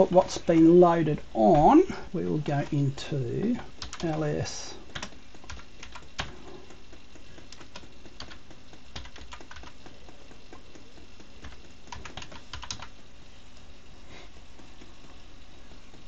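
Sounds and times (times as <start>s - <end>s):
computer keyboard typing: 3.6s - 13.0s.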